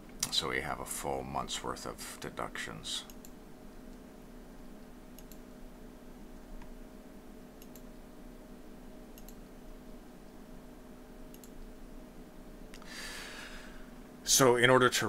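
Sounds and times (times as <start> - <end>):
faint steady hum: 0.0 - 15.0
computer mouse clicking: 5.2 - 5.4, 7.6 - 7.9, 9.2 - 9.4, 11.3 - 11.7.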